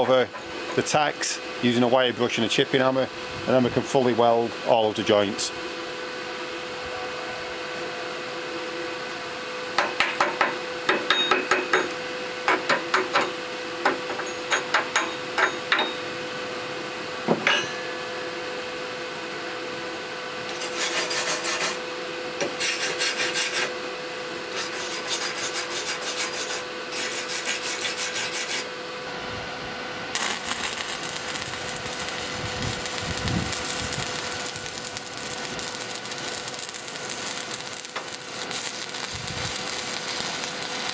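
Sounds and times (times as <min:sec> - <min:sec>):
chipping hammer tapping on steel: 0:09.8 - 0:13.3
wire brush scrubbing metal: 0:20.5 - 0:21.8, 0:22.6 - 0:23.7, 0:24.5 - 0:28.7
arc welder crackling: 0:20.5 - 0:23.8, 0:24.5 - 0:40.9.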